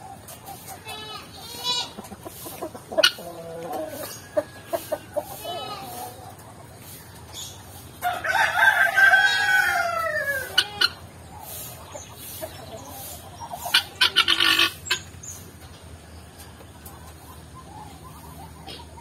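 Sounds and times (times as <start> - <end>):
rooster crowing: 8.0 - 10.8
harsh fowl calls: 8.3 - 15.1.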